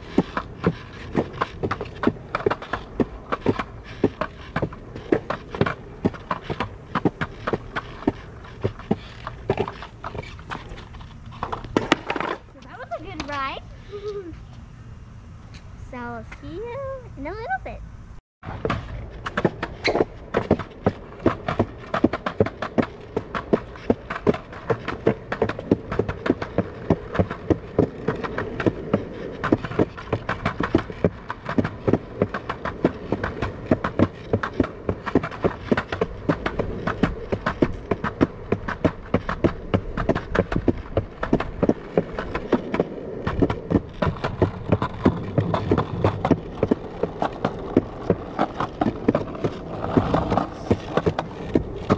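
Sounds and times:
skateboard wheels rolling on concrete: 0.0 - 17.8, 18.4 - 51.9.

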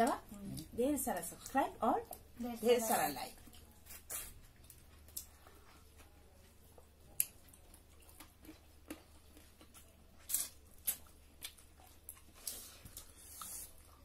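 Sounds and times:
wet chewing and lip smacks: 3.4 - 14.0.

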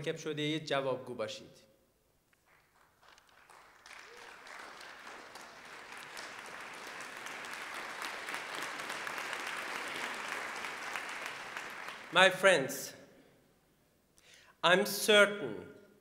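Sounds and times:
audience applauding: 2.4 - 12.3.

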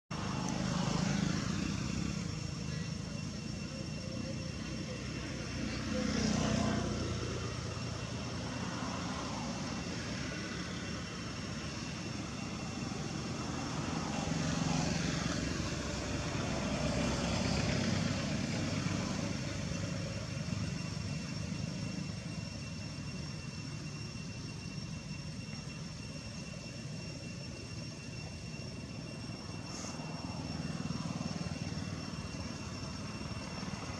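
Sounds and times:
distant engine drone: 0.1 - 33.9
faint high whine: 0.1 - 33.9.

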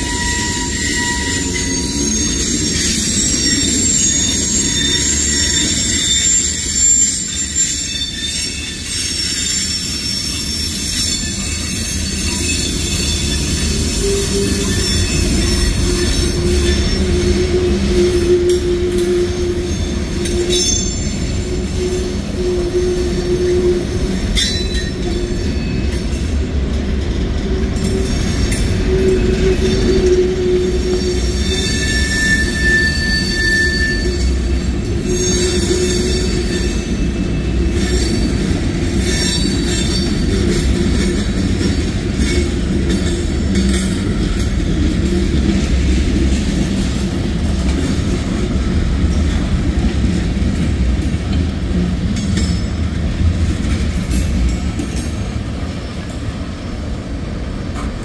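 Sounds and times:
high-pitched wheel squeal: 0.0 - 26.0, 27.5 - 43.0
train wheels rumbling on rails: 0.0 - 58.0.

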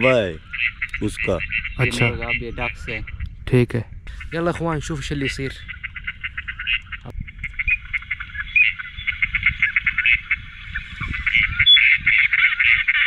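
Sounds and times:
electronic duck and goose calls: 5.6 - 13.0.

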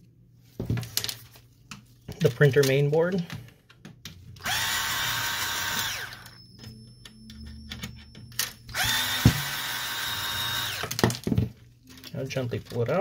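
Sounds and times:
power screwdriver whining: 4.4 - 6.4, 8.7 - 11.0.

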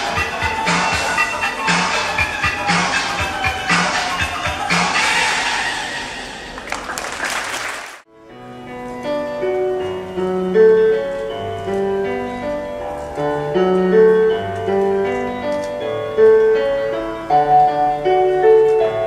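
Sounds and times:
music: 0.0 - 6.7, 8.1 - 19.0
audience applauding: 6.5 - 8.0
slow piano music: 8.1 - 19.0.

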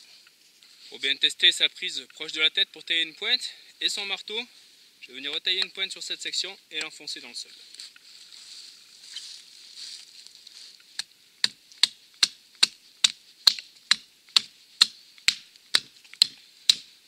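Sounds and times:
hatchet chopping wood: 11.4 - 16.9.

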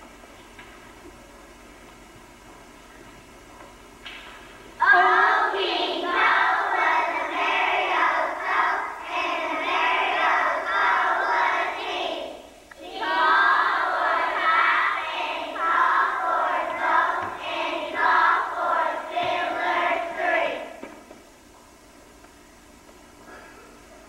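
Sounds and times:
children singing together: 4.8 - 20.8.

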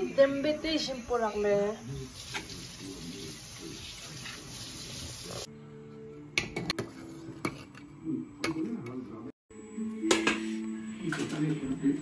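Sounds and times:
chutney sizzling in a pan: 0.2 - 5.5
faint held tones: 9.5 - 12.0.

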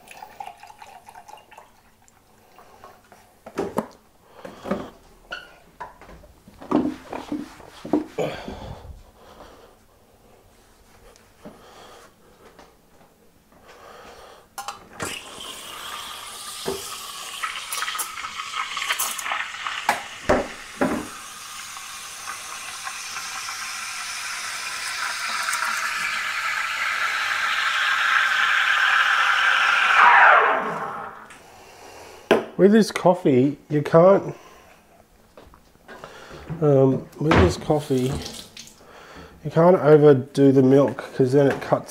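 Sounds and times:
steam wand steaming milk: 15.0 - 31.3.

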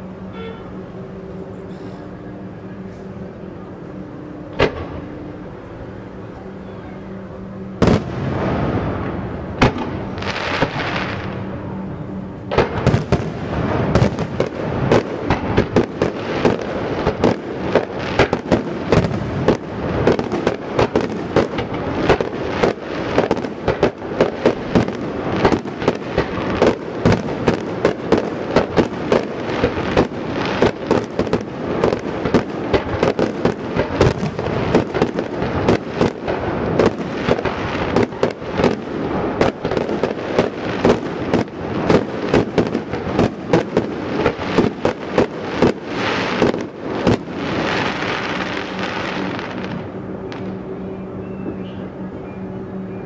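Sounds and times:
fireworks bangs and crackles: 4.1 - 50.7
firework hiss: 7.8 - 11.8, 12.5 - 50.5.

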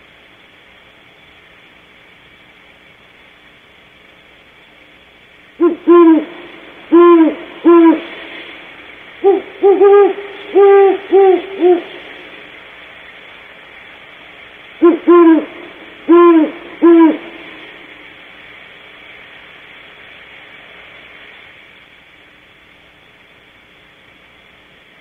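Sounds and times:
owl hooting: 5.6 - 12.5, 14.8 - 18.0.

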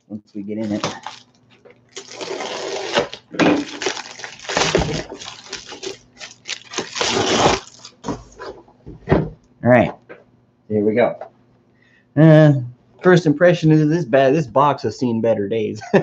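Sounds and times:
plastic mailer crinkling: 0.6 - 8.4.

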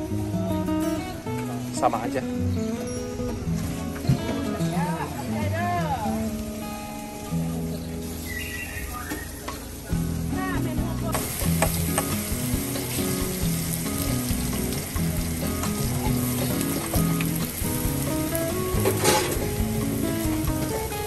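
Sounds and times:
meat sizzling on a griddle: 6.0 - 21.0.

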